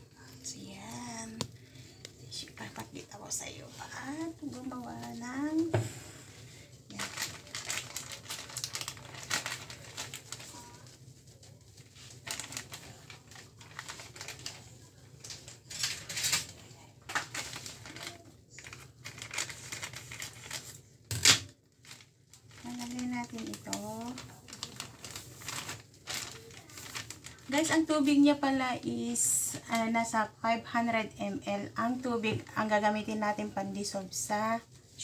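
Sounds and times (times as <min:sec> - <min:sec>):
plastic bag crinkling: 0:00.1 - 0:05.8, 0:06.4 - 0:29.9
scissors snipping plastic bag: 0:06.9 - 0:10.8, 0:12.2 - 0:14.6, 0:15.2 - 0:27.4.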